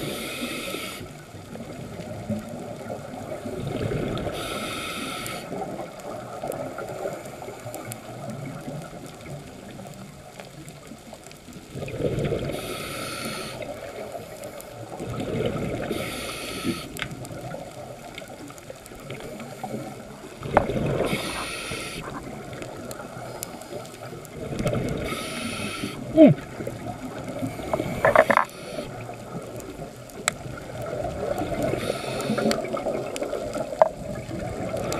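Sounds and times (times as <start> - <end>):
regulator hiss on inhale: 0.0 - 1.3, 4.1 - 5.8, 12.4 - 17.2, 19.1 - 26.2, 27.2 - 29.5, 31.4 - 33.4
steady underwater wash: 0.0 - 34.9
bubbling on exhale: 11.7 - 14.1, 14.8 - 17.6, 19.0 - 29.6.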